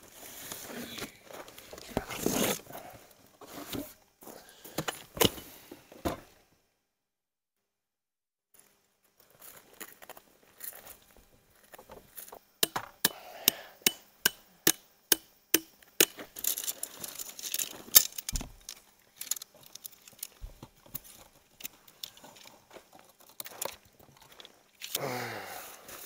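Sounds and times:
hammer striking metal tent stake: 12.6s - 16.2s.

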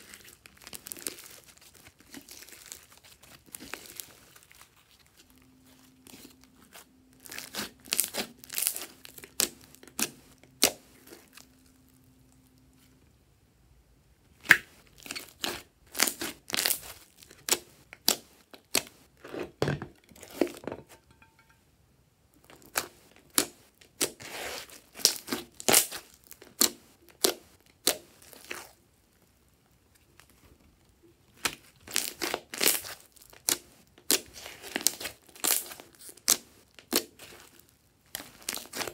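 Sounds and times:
slime crackling and popping: 0.0s - 11.9s, 14.4s - 18.9s, 22.4s - 28.8s, 31.3s - 38.9s.

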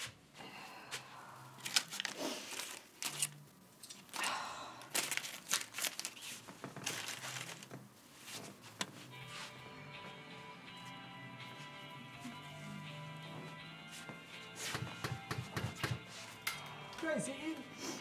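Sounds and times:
rustling and crinkling: 0.0s - 4.3s, 4.9s - 9.6s.

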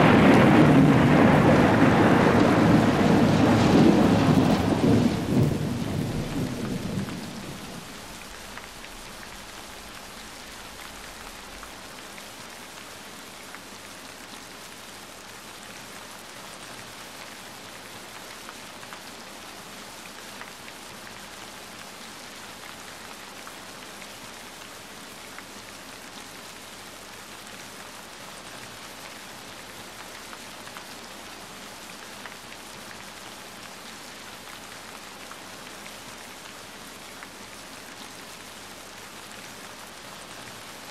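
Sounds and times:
thunder rolling: 0.0s - 11.7s
steady rain: 0.0s - 40.9s.

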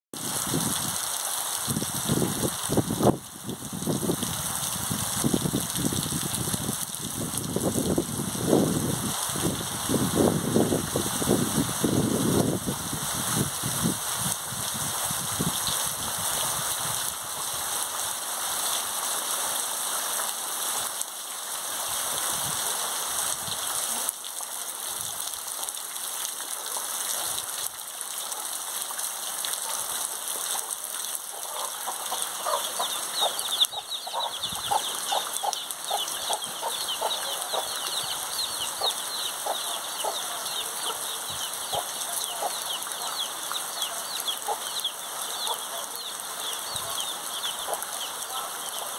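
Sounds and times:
heavy rain falling: 0.2s - 48.9s
hen clucking: 31.4s - 41.1s
chicks peeping: 31.6s - 43.3s.

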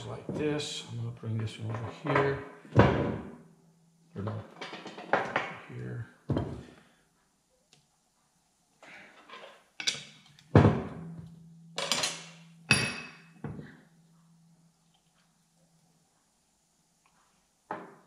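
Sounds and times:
metal gears clanking on workbench: 11.8s - 13.1s.

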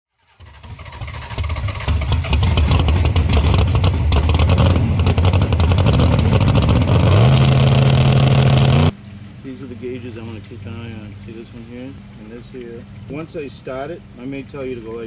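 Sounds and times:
drag car engine revving: 0.2s - 8.9s.

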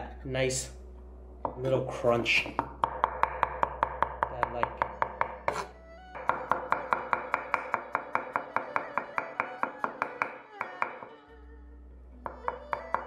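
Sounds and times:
cleaver chopping on wooden board: 2.4s - 11.1s.

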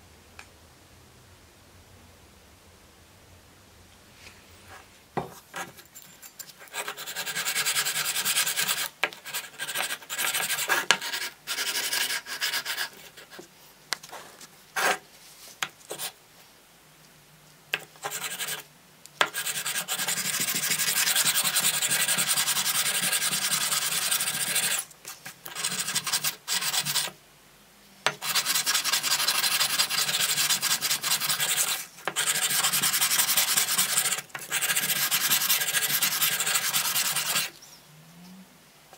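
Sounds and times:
knife blade wet sanding: 19.4s - 24.8s, 28.2s - 37.5s.

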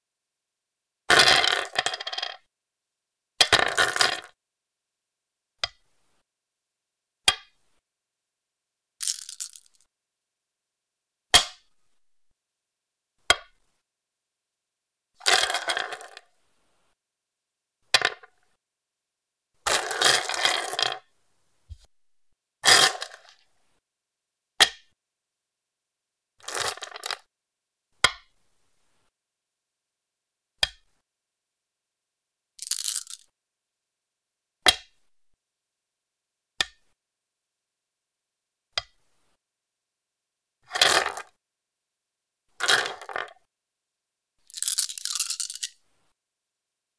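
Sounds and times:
stones clicking on wooden board: 1.2s - 2.4s, 9.0s - 9.9s, 15.2s - 16.2s, 26.4s - 27.2s, 32.6s - 33.3s, 42.6s - 43.4s, 44.5s - 45.8s.

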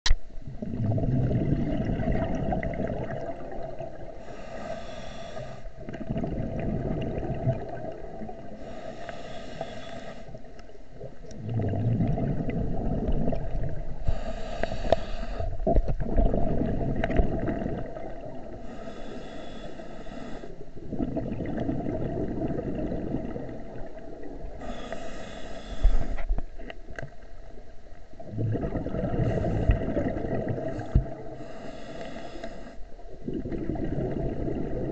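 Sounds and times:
exhaled bubbles rumbling underwater: 0.2s - 34.9s
regulator inhalation hiss: 4.2s - 5.7s, 8.6s - 10.4s, 14.0s - 15.6s, 18.6s - 20.6s, 24.6s - 26.2s, 30.8s - 32.8s.

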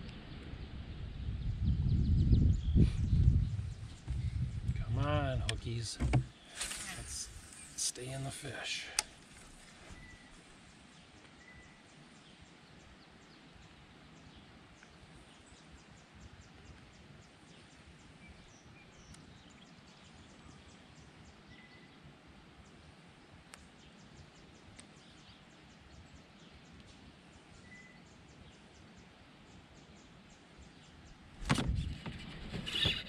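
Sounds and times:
loud thump: 31.4s - 32.2s.

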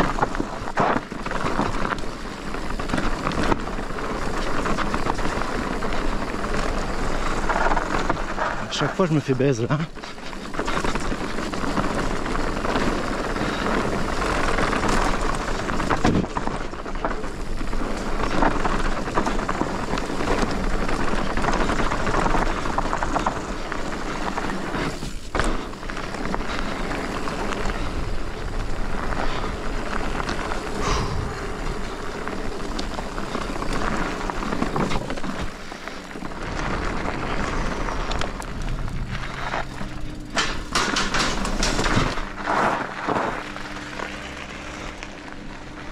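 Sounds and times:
tyres rushing on dirt: 0.0s - 45.9s
bike knocks and rattles: 9.8s - 44.6s.

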